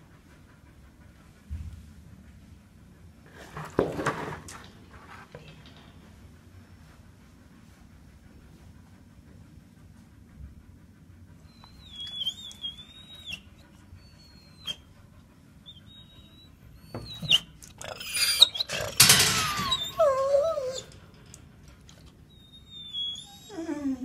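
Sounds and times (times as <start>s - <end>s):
dogs whining and whimpering: 11.4s - 24.0s.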